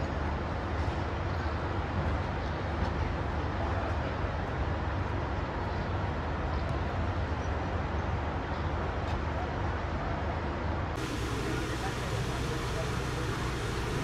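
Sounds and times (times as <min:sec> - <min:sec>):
outdoor noise: 0:00.0 - 0:14.0
engines idling: 0:11.0 - 0:14.0.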